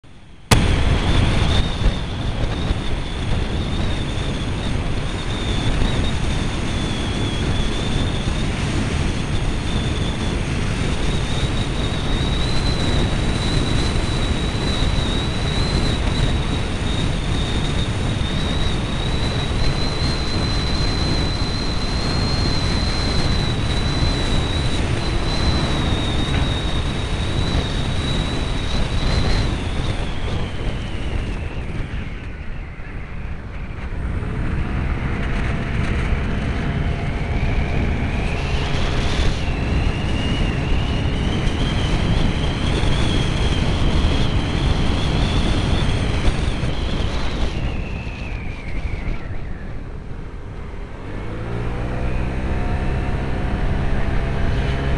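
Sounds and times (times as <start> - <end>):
wind rushing over microphone: 0.0 - 54.9
thin high whine: 0.1 - 54.9.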